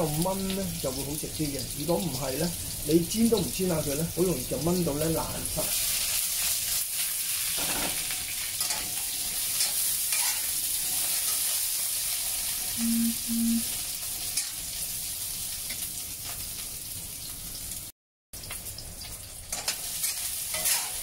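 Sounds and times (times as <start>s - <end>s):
potatoes sizzling in oil: 0.0s - 21.0s
wok clattering: 7.5s - 11.6s, 19.5s - 21.0s
short low beeps: 12.8s - 13.6s.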